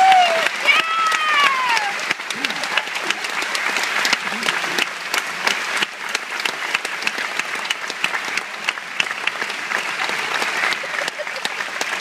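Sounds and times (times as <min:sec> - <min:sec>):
audience applauding: 0:00.0 - 0:12.0
close sharp claps: 0:00.0 - 0:12.0.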